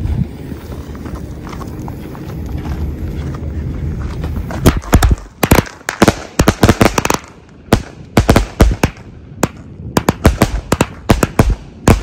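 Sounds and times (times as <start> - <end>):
fireworks bangs: 4.5 - 12.0.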